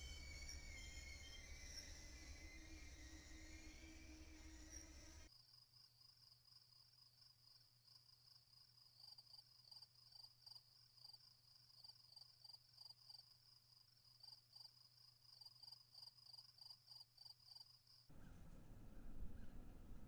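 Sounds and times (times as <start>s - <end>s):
faint low hum: 0.0s - 5.3s, 18.1s - 20.0s
insects chirping: 0.0s - 5.3s
insects pulsing trill: 0.0s - 5.3s.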